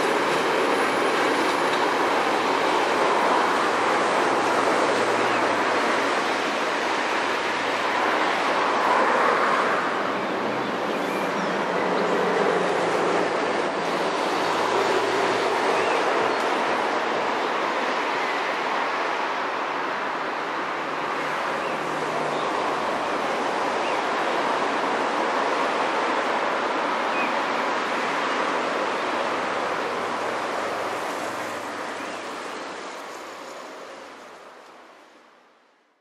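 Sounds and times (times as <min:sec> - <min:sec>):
freight train rumbling on rails: 0:00.0 - 0:27.2.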